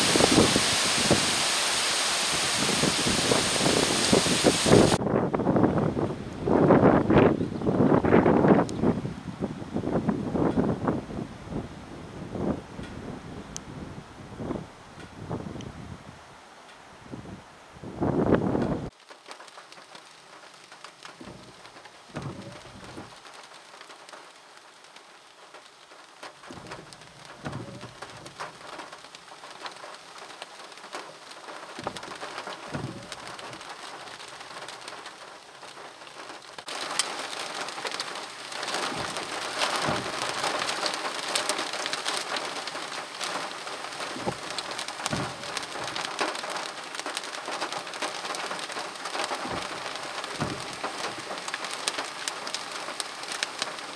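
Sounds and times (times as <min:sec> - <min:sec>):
rain on car windshield: 0:00.0 - 0:11.0, 0:18.0 - 0:53.9
windshield wipers thudding: 0:21.0 - 0:24.2, 0:25.5 - 0:53.9.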